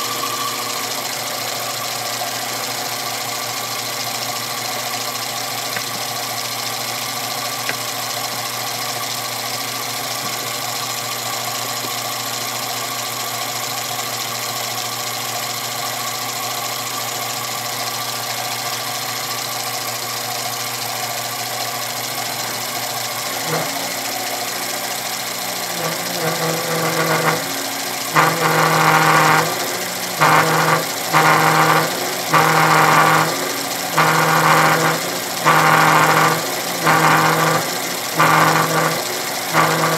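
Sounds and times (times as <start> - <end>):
milling machine spindle motor: 0.0 - 6.2, 20.6 - 39.9
mill cutter biting into metal: 23.4 - 24.4, 25.7 - 39.9.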